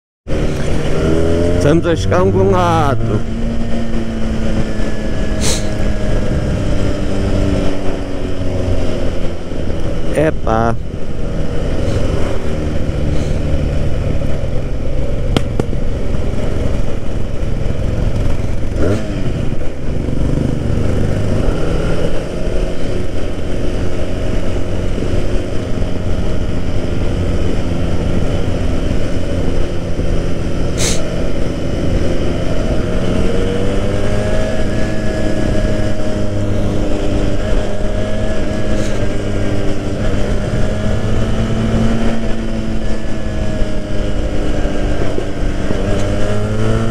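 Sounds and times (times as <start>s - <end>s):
wind rush on microphone: 0.3s - 10.1s
motorcycle engine running: 0.3s - 46.9s.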